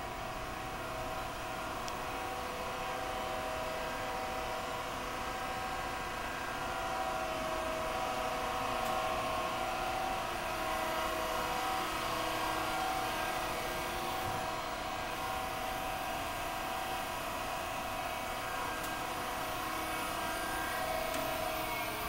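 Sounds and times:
machine hum: 0.0 - 22.0
machine whining tones: 6.0 - 22.0.

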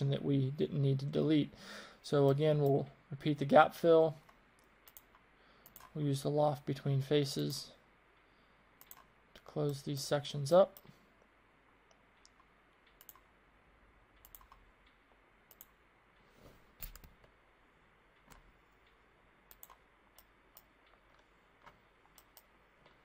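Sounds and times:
computer mouse clicks: 4.2 - 6.0, 8.8 - 9.5, 11.8 - 13.3, 14.2 - 15.8, 16.8 - 17.4, 18.2 - 23.0.

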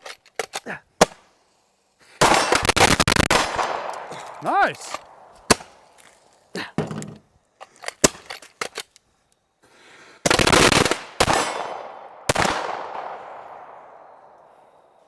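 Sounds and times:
pistol shots: 2.2 - 4.5, 10.2 - 13.8.

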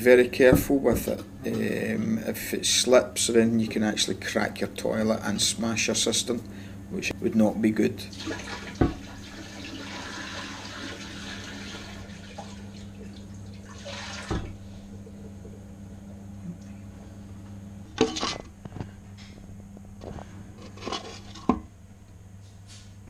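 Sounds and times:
water pouring into toilet pan: 8.0 - 14.6.

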